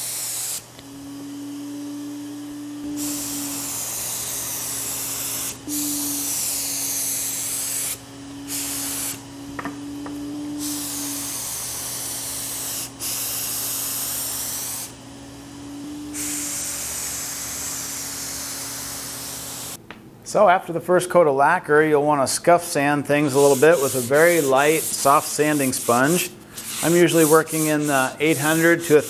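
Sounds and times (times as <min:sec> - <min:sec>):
spray gun hissing: 0:00.0 - 0:15.0, 0:15.6 - 0:19.8, 0:23.2 - 0:29.0
turbine humming: 0:00.0 - 0:19.8.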